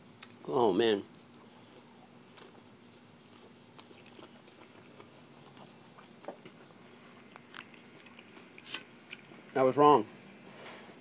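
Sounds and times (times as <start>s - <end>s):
insects droning: 0.0s - 11.0s
person chewing: 1.1s - 9.6s.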